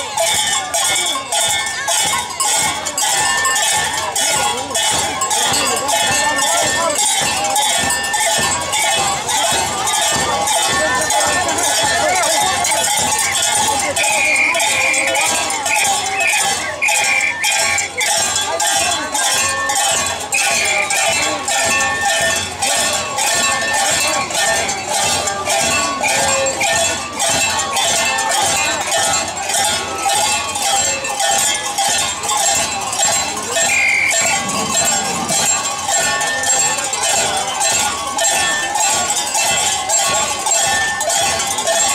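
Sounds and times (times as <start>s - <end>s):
cowbells clanging: 0.0s - 41.9s
crowd voices: 0.0s - 41.9s
people shouting: 33.4s - 35.4s.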